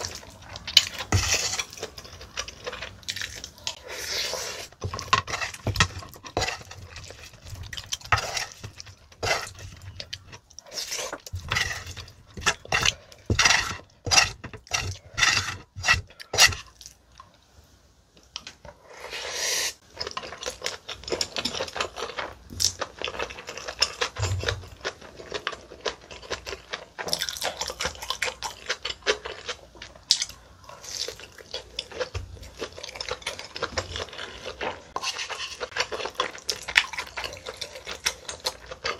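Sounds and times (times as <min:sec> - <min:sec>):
wooden spoon scraping a plate: 0:00.8 - 0:02.5, 0:03.7 - 0:16.7, 0:34.9 - 0:35.7
chewing: 0:20.0 - 0:38.9.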